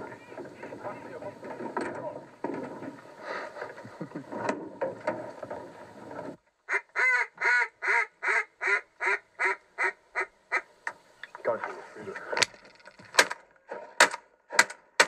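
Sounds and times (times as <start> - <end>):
duck call quacks: 6.7 - 10.7.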